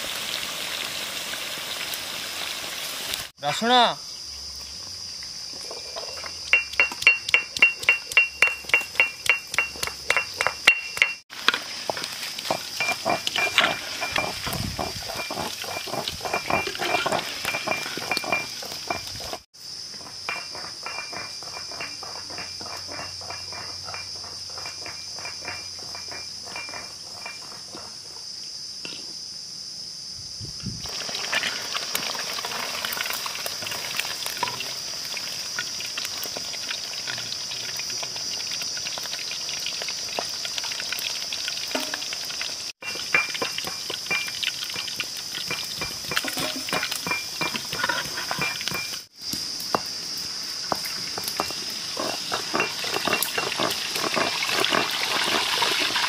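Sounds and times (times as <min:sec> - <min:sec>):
fish sizzling in hot oil: 0:00.0 - 0:03.3, 0:11.0 - 0:19.5, 0:30.8 - 0:48.0, 0:48.6 - 0:56.0.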